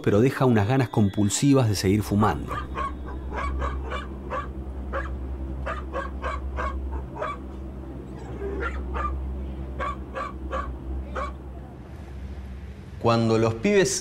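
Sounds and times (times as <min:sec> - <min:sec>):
steady low hum: 0:01.7 - 0:14.0
dog barking: 0:02.5 - 0:07.4, 0:08.5 - 0:09.2, 0:09.8 - 0:11.4.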